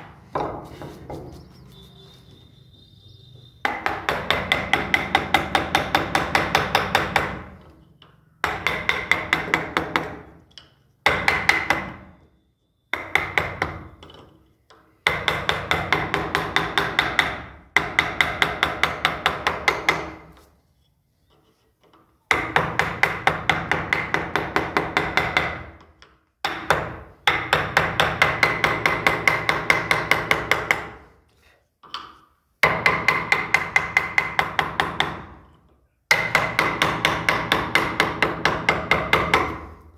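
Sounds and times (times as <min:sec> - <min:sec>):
hammer striking chisel into wood: 0:03.6 - 0:07.8, 0:08.4 - 0:12.1, 0:12.9 - 0:14.3, 0:15.0 - 0:20.3, 0:22.3 - 0:31.1, 0:31.8 - 0:39.8.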